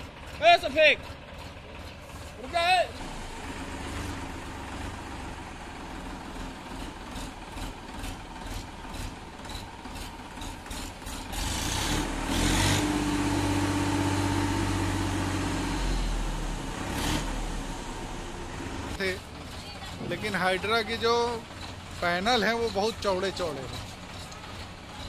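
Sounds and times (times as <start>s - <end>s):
tractor engine running: 0.0s - 25.0s.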